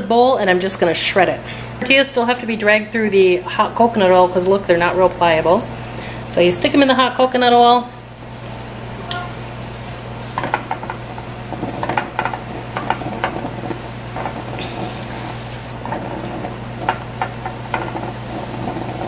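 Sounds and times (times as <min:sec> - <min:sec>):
tortilla sizzling in oil: 0:01.5 - 0:19.0
tongs clicking and scraping pan: 0:10.4 - 0:19.0.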